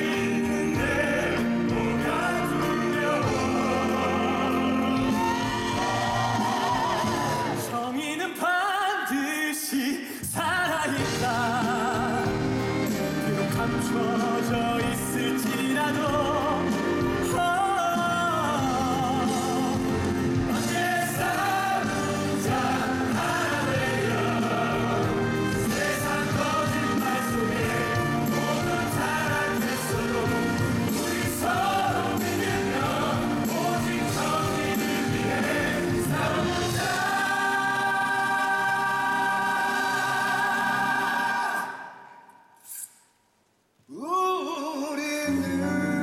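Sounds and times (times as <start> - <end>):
instrumental accompaniment: 0.0 - 7.7, 11.0 - 41.6
ensemble chorus singing: 0.0 - 8.0, 10.8 - 42.5
man singing lead: 7.4 - 42.0, 43.9 - 46.0.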